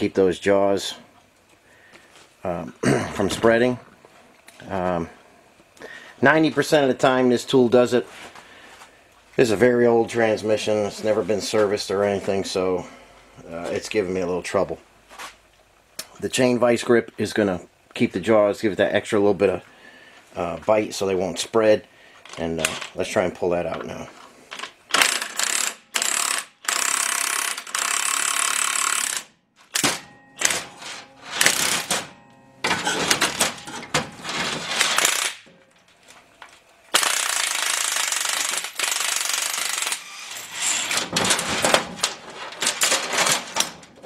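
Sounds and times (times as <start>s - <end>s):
impact wrench hammering: 24.9s - 35.6s, 37.0s - 41.9s.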